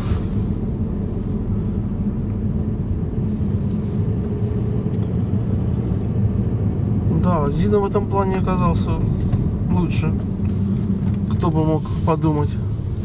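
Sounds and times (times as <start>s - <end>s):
low rumble inside car: 0.0s - 13.0s.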